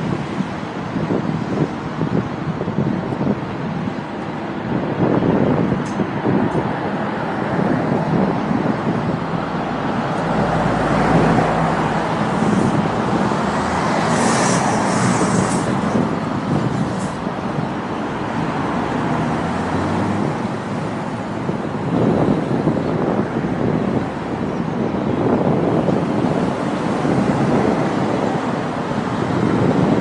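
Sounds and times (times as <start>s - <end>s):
cars passing along street: 0.0s - 30.0s.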